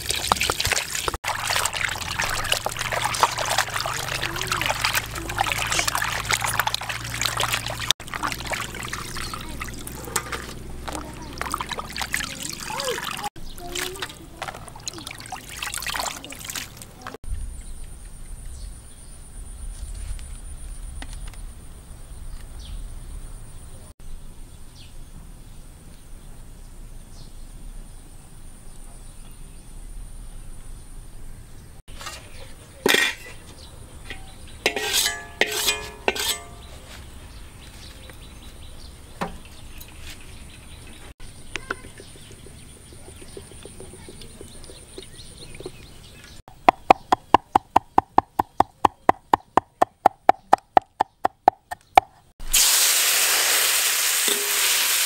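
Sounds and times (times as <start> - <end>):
metal cookware clinking: 31.9 - 36.8, 54.3 - 54.8.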